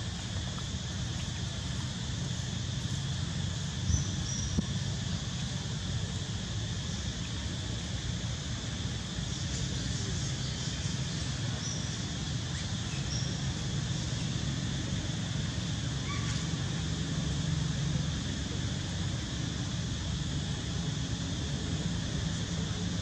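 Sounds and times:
insect drone: 0.0s - 23.0s.

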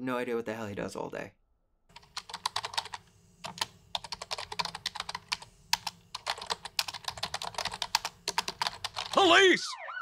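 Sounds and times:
typing on keyboard: 1.9s - 9.2s.

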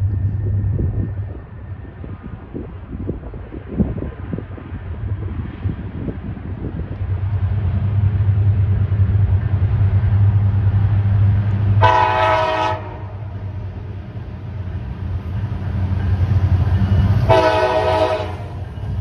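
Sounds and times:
diesel locomotive engine drone: 0.0s - 19.0s
multi-tone locomotive horn: 11.8s - 13.5s, 17.0s - 18.7s.

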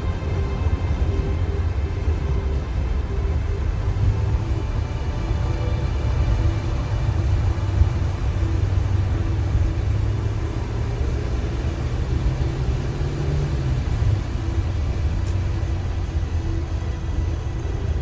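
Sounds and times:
car driving on road: 0.0s - 18.0s.

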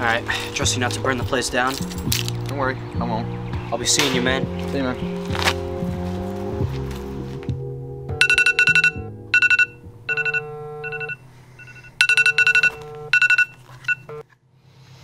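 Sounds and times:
phone ringtone beeping: 8.2s - 14.2s.

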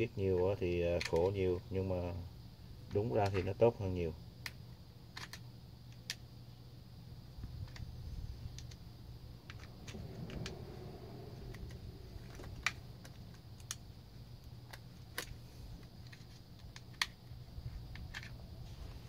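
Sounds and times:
faint low hum: 0.0s - 19.0s
clicks and taps of handled parts: 1.0s - 1.4s, 4.4s - 6.2s, 14.7s - 17.3s, 17.9s - 18.4s.

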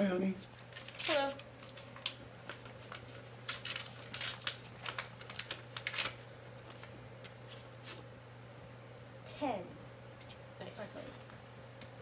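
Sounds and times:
paper envelope and card crinkling: 0.5s - 8.0s.

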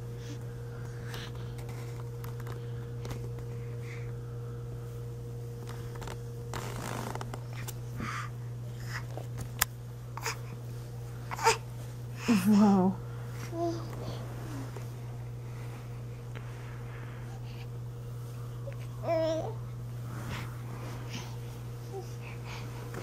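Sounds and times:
low steady hum: 0.0s - 23.0s
clothing and blankets rustling: 5.6s - 8.2s, 13.2s - 17.4s, 18.0s - 23.0s.

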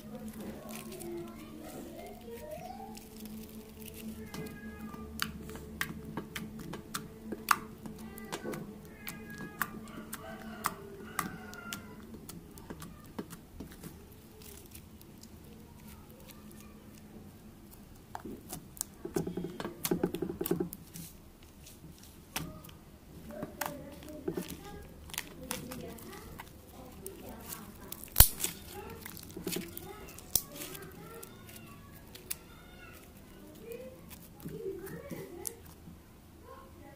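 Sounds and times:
rapid squishing crackle: 0.0s - 36.6s
slime clicking and popping: 2.2s - 21.5s, 23.5s - 33.3s.

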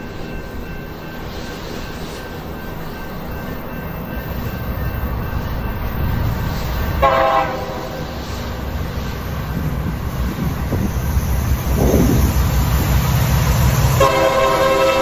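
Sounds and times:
locomotive engine and rail rumble: 0.0s - 15.0s
train horn blasts: 7.0s - 8.0s, 13.8s - 15.0s.

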